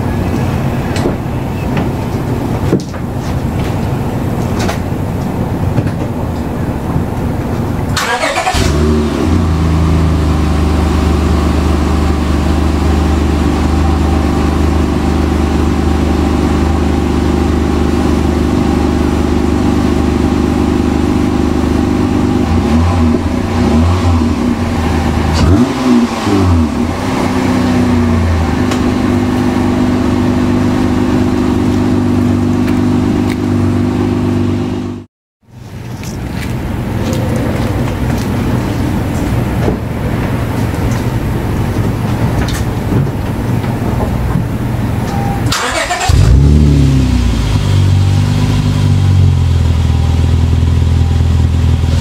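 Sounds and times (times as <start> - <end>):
car engine idling: 0.0 - 52.0
engine revving in short blips: 45.1 - 48.3.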